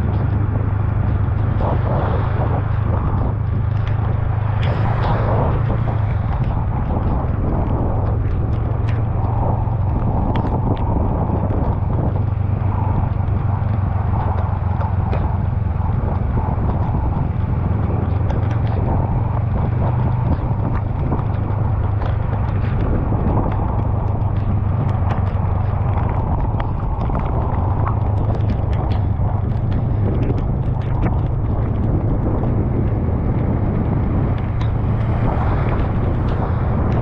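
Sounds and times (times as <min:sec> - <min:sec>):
motorcycle engine droning: 0:00.0 - 0:37.0
wet road noise: 0:00.0 - 0:37.0
wind noise: 0:00.0 - 0:37.0
light ticks: 0:13.1 - 0:37.0.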